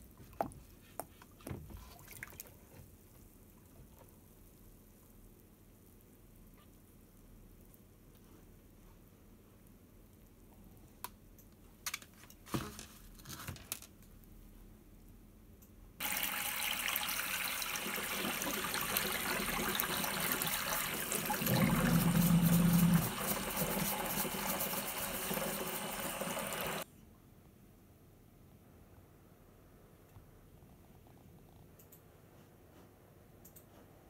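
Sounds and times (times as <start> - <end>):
water running into sink: 16.0 - 26.8.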